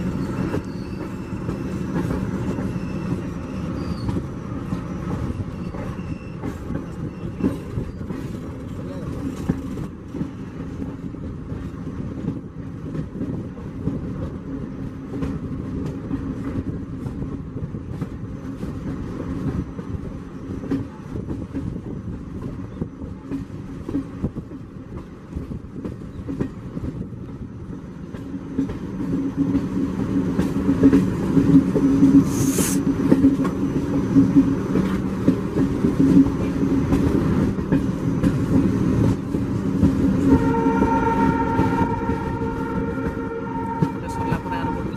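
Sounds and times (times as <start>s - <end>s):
train wheels rumbling on rails: 0.0s - 44.9s
brief hiss: 32.3s - 32.8s.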